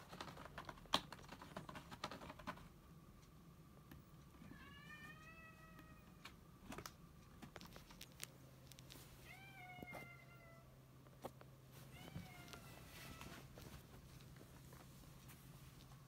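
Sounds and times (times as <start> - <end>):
cat meowing softly: 11.9 - 13.5.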